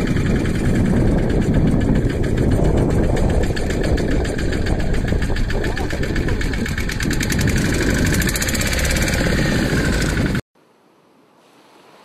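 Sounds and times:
boat engine knocking: 0:00.0 - 0:10.4
faint hiss: 0:10.6 - 0:12.0.

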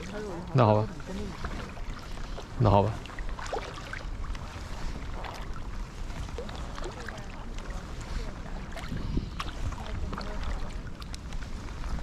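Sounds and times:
water dripping and lapping: 0:00.0 - 0:12.0
wind rumble on microphone: 0:00.0 - 0:12.0.

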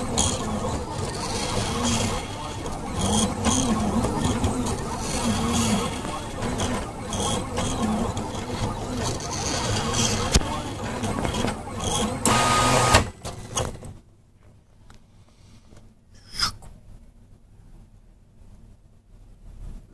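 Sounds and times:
stepper motors whining: 0:00.0 - 0:13.2
brief hiss: 0:16.2 - 0:16.7.

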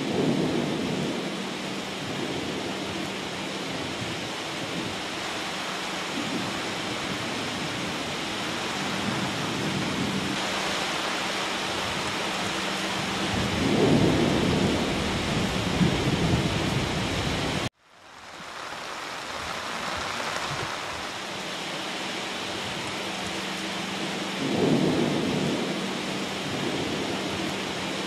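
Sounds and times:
low thunder rumble: 0:00.0 - 0:05.1, 0:06.1 - 0:17.7, 0:24.4 - 0:27.8
heavy rain pouring: 0:00.0 - 0:28.0.

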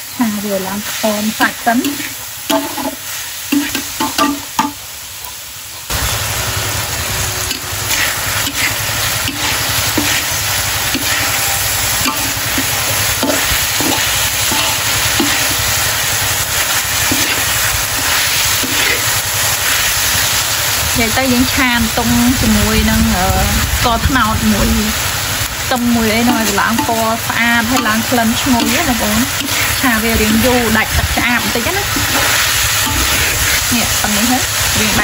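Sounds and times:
fish sizzling in a wok: 0:00.0 - 0:35.0
metal ladle scraping a pan: 0:07.5 - 0:20.4, 0:26.0 - 0:35.0.

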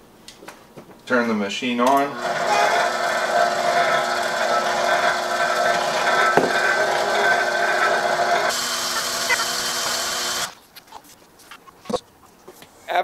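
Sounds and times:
mixer motor whine: 0:01.9 - 0:10.6
knock: 0:06.4 - 0:06.6.

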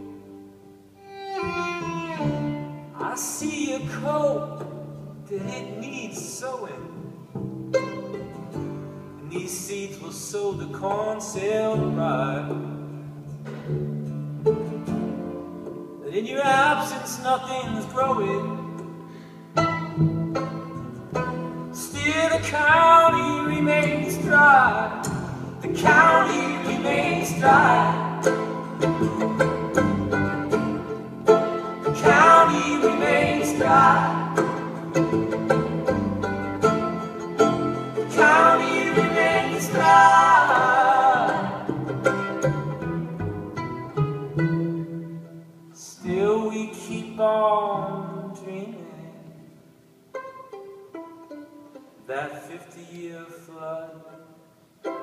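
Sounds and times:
acoustic guitar: 0:00.0 - 0:55.0
upright bass: 0:01.4 - 0:45.3.

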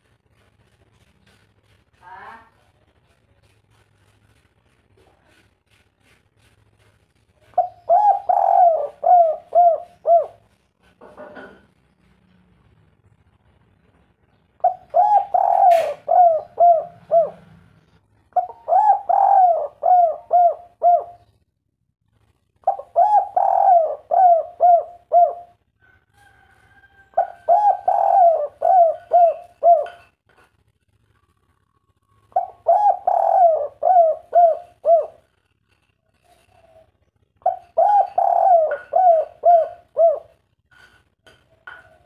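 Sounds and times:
dove cooing: 0:07.4 - 0:11.6, 0:14.6 - 0:21.3, 0:22.6 - 0:25.6, 0:27.1 - 0:30.1, 0:32.2 - 0:40.6.

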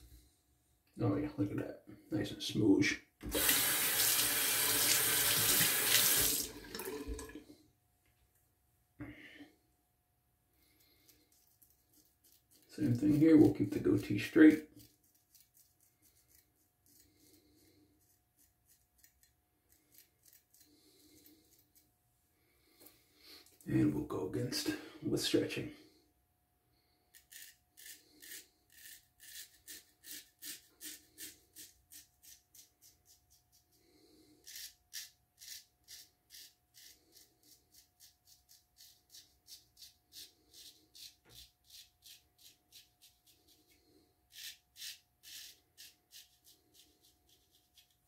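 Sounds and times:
razor scraping stubble: 0:10.9 - 0:21.9, 0:27.1 - 0:33.7, 0:34.4 - 0:48.0.

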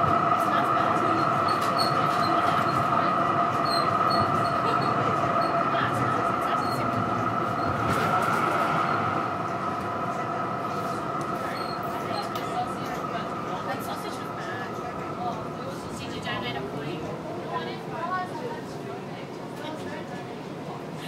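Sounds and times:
tram motor whine: 0:00.0 - 0:16.8
tram wheels rumbling on rail: 0:00.0 - 0:21.0.

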